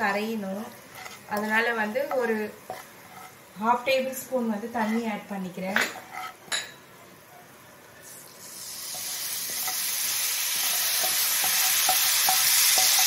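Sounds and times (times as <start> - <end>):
spices sizzling in oil: 0.0 - 7.3, 7.9 - 13.0
spatula scraping and tapping pan: 0.7 - 3.4, 5.7 - 6.8, 8.9 - 9.9, 10.5 - 13.0.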